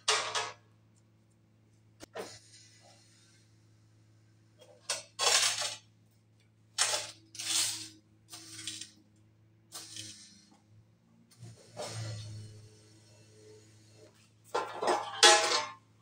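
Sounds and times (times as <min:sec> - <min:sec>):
steel plate crackling and clinking: 0:06.8 - 0:09.0, 0:14.5 - 0:15.9.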